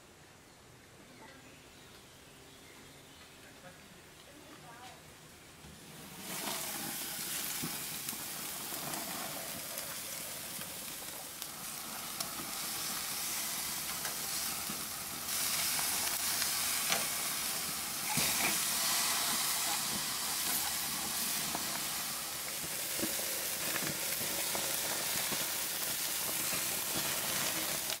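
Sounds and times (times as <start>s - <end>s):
meat sizzling on a grill: 5.6s - 28.0s.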